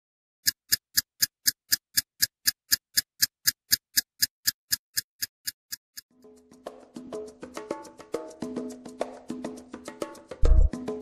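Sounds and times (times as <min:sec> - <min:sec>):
sharp ticking: 0:00.4 - 0:06.1
music: 0:06.1 - 0:11.0.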